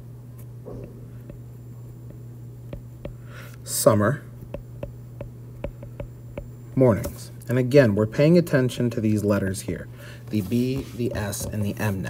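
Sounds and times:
low electrical hum: 0.0 - 12.0
stylus tapping on glass screen: 0.8 - 3.3, 4.5 - 6.6.

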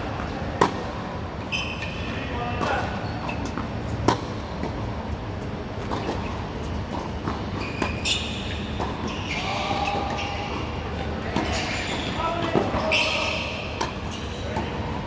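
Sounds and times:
tennis ball bouncing: 0.1 - 0.9, 2.6 - 8.1, 8.7 - 10.7, 11.3 - 12.8, 13.7 - 15.0
racket hitting tennis ball: 0.2 - 0.9, 2.6 - 4.8, 8.7 - 9.1, 11.3 - 14.8.

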